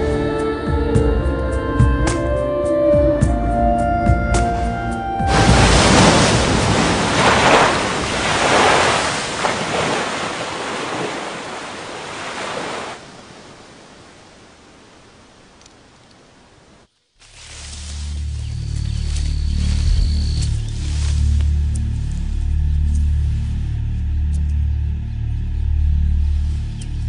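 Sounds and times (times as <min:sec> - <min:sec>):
music: 0:00.0 - 0:05.4, 0:17.9 - 0:27.0
loud rushing noise: 0:05.3 - 0:09.2.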